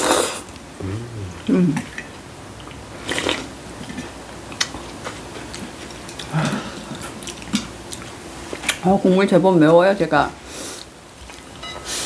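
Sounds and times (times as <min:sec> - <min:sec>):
person slurping broth: 0:00.0 - 0:02.0
eating noises: 0:00.0 - 0:08.8.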